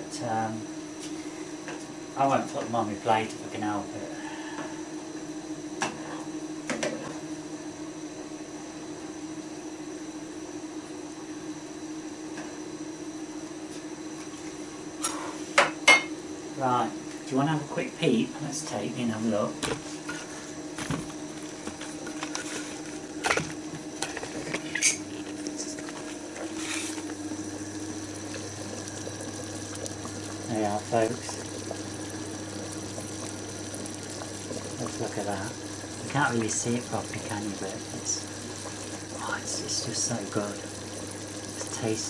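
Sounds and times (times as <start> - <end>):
steady low hum: 0.0 - 42.0
stew bubbling and popping: 20.7 - 42.0.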